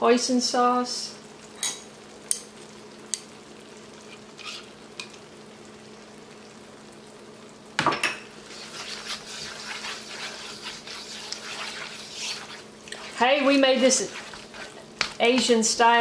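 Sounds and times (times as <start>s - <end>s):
soft sizzle: 0.0s - 16.0s
utensil scraping a wok: 4.0s - 4.8s, 8.4s - 15.8s.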